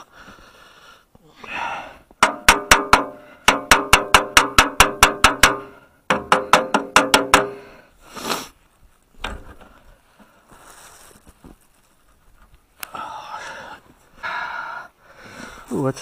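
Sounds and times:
rustle: 0:07.6 - 0:14.5
thump: 0:09.2 - 0:09.7.

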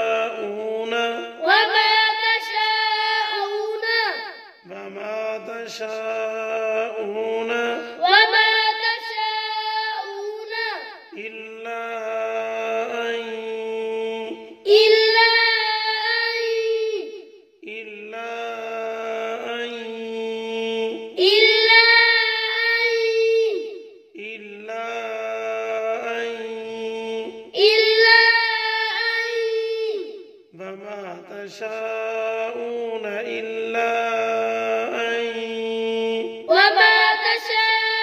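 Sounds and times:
melodic recitation chanting: 0:00.0 - 0:38.0
high and low voices alternating: 0:06.7 - 0:11.4, 0:14.7 - 0:17.1, 0:17.7 - 0:23.7, 0:26.4 - 0:30.1, 0:36.3 - 0:38.0.

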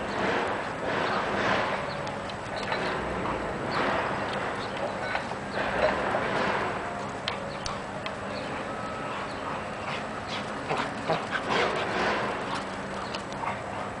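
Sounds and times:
dogs play-fighting: 0:00.4 - 0:14.0.

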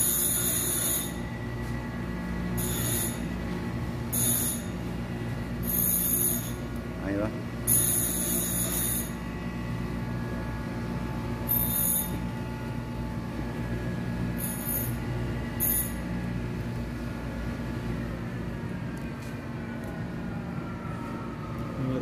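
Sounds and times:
short high-pitched squeals: 0:00.0 - 0:01.3, 0:02.6 - 0:03.3, 0:04.1 - 0:04.8, 0:05.6 - 0:06.7, 0:07.7 - 0:09.2, 0:11.4 - 0:12.3, 0:14.4 - 0:15.0, 0:15.6 - 0:16.1
steady mechanical hum: 0:00.0 - 0:22.0.

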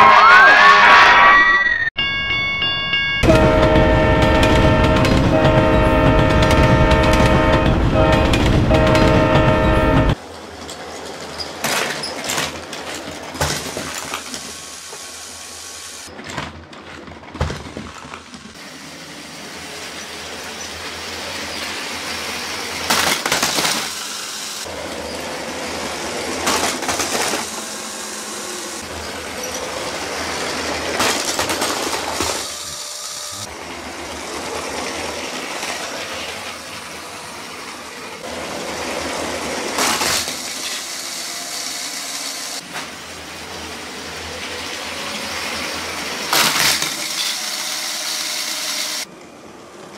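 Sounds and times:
wheels rattling on plastic track: 0:10.2 - 0:15.4, 0:16.1 - 0:24.1, 0:24.7 - 0:28.1, 0:28.8 - 0:49.0
toy train motor whir: 0:45.4 - 0:49.1.

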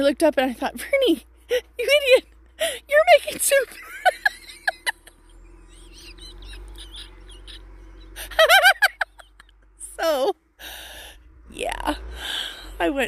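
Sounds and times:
woman laughing: 0:03.5 - 0:09.6.

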